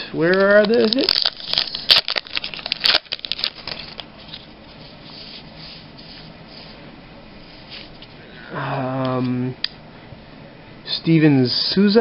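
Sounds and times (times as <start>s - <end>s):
card pack wrapper crinkling and tearing: 0.3s - 4.5s
cards rustling in hand: 0.3s - 6.8s.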